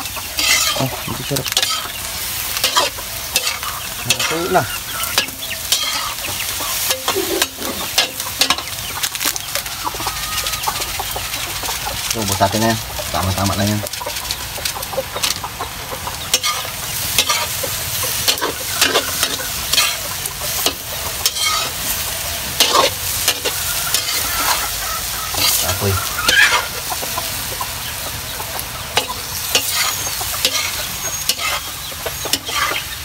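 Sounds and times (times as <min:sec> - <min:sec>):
food sizzling: 0:00.0 - 0:33.0
metal spatula scraping a wok: 0:00.2 - 0:12.0, 0:16.3 - 0:26.8, 0:28.9 - 0:33.0.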